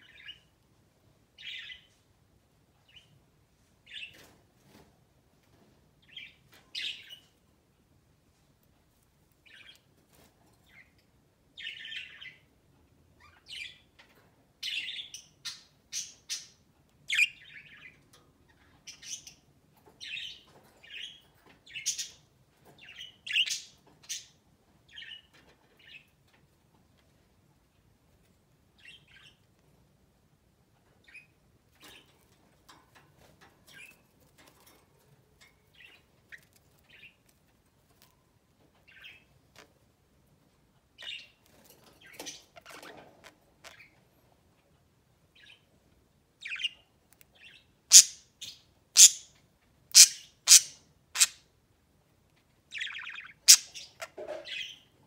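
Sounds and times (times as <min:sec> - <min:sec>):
budgerigars chirping: 0:47.4 - 0:49.3, 0:49.9 - 0:51.4, 0:52.7 - 0:54.9.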